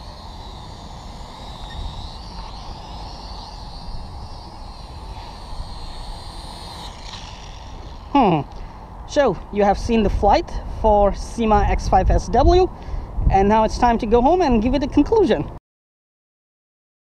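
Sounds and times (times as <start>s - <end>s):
toy drone propellers whining: 0.0s - 14.4s
wind rumble on microphone: 9.4s - 15.6s.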